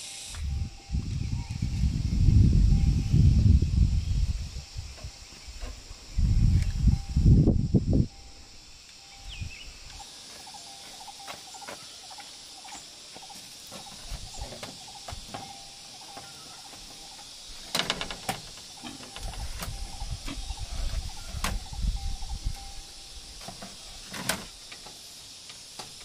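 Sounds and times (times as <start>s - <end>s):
insects chirping: 0.0s - 26.0s
bamboo panel rattling and knocking: 13.7s - 21.7s.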